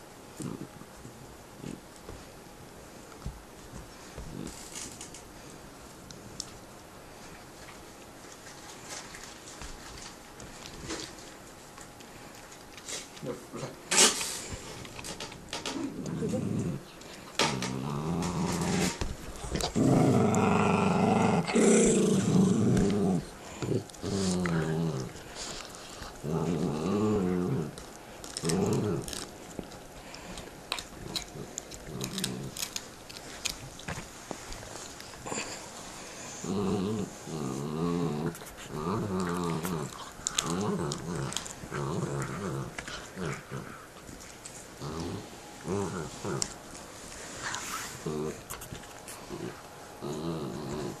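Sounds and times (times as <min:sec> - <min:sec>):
dogs growling: 0:00.4 - 0:02.2, 0:03.9 - 0:05.2, 0:12.8 - 0:51.0
teeth clicking on bone: 0:39.1 - 0:41.6.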